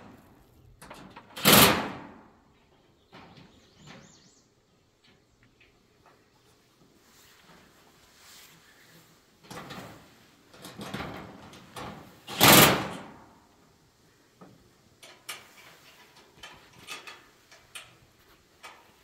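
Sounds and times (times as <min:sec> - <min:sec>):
metal parts scraping and clanking: 0:15.1 - 0:19.0.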